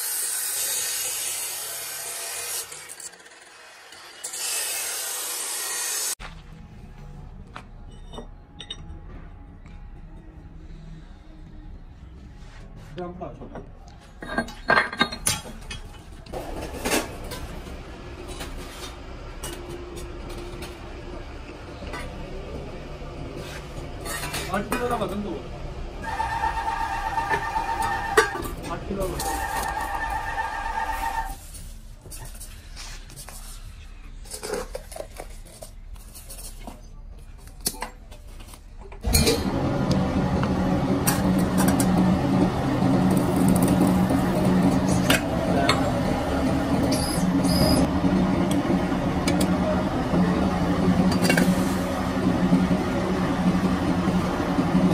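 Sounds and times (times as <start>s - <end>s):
clinks and scrapes of gritty fill: 28.2s - 39.0s
factory machine hum: 39.0s - 54.9s.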